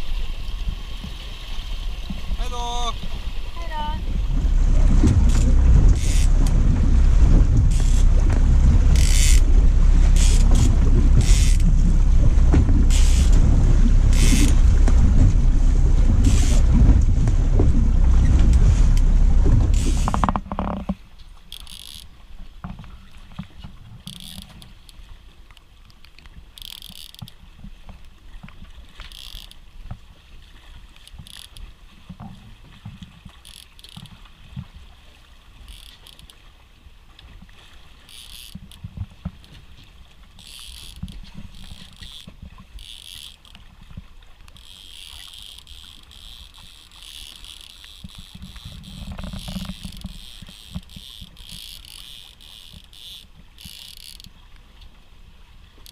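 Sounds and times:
wind buffeting microphone: 0:00.0 - 0:20.5.

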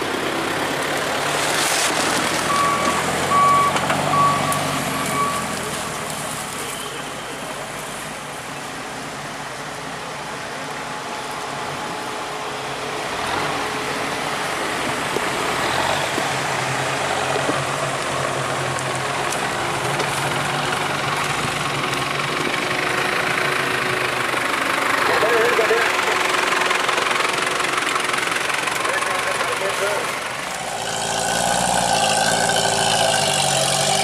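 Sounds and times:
vehicle engine running: 0:00.0 - 0:34.0.

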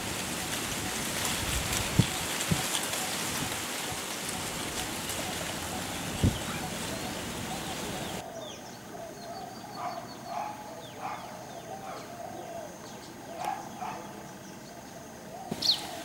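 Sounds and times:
rain hiss: 0:00.0 - 0:08.2, 0:15.5 - 0:16.0
bird calls: 0:00.3 - 0:16.0
faint high bird chirps: 0:15.4 - 0:16.0.

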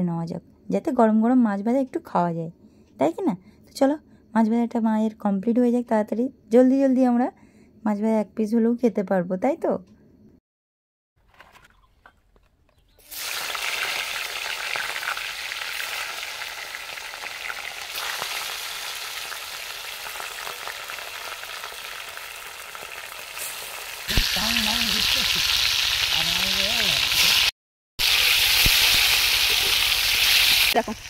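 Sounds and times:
fish sizzling in hot oil: 0:13.0 - 0:31.0.

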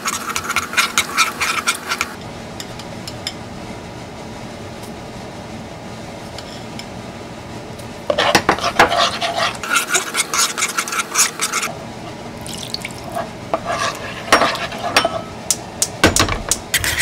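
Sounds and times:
metal spoon scraping in wok: 0:08.1 - 0:11.7, 0:13.2 - 0:15.4, 0:16.7 - 0:17.0.

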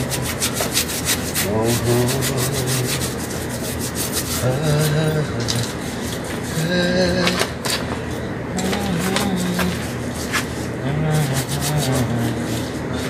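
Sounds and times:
cloth wiping bicycle frame: 0:00.0 - 0:04.9, 0:11.1 - 0:12.8.

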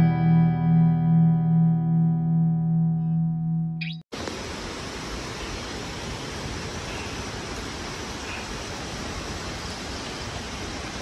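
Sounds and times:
waterfall rushing: 0:04.2 - 0:11.0.

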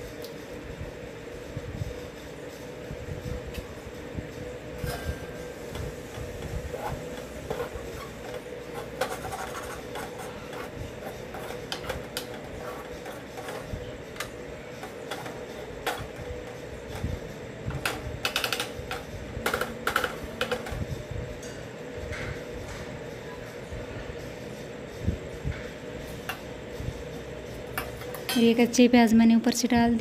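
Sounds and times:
steady hum: 0:00.0 - 0:30.0
ladle clinking and scraping pot: 0:04.8 - 0:17.0.

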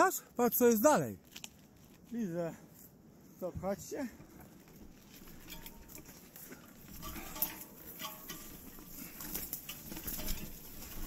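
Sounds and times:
footsteps on stony trail: 0:01.2 - 0:11.0
bike clicks and knocks: 0:04.3 - 0:11.0.

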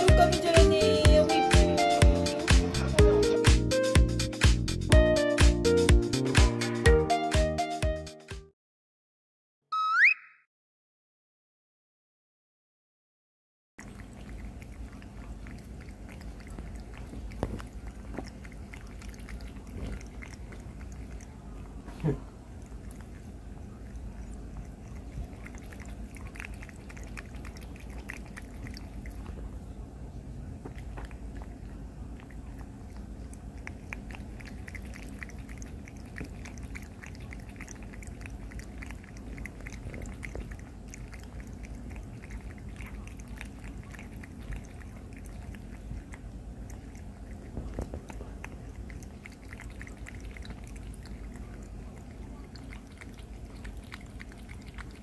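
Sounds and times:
cat lapping water: 0:13.8 - 0:55.0.

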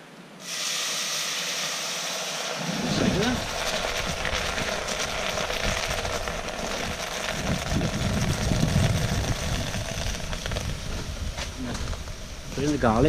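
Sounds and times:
wind buffeting microphone: 0:02.9 - 0:13.0.

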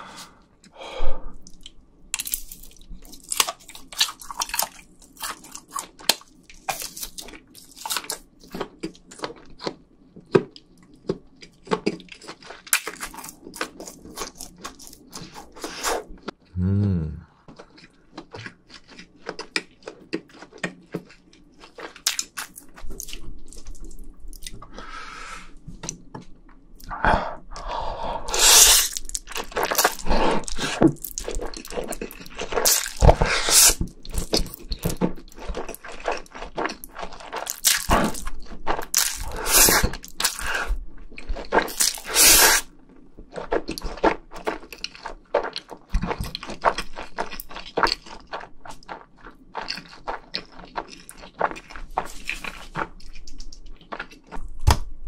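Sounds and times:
slurping noodles: 0:28.3 - 0:29.0
wet chewing: 0:28.3 - 0:54.5.

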